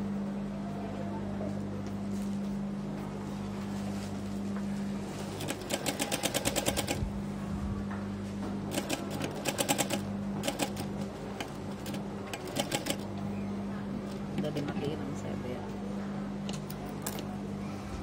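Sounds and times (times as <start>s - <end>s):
sewing machine motor hum: 5.2s - 7.1s, 8.6s - 13.3s
sewing machine stitching: 5.4s - 7.0s, 8.7s - 13.1s.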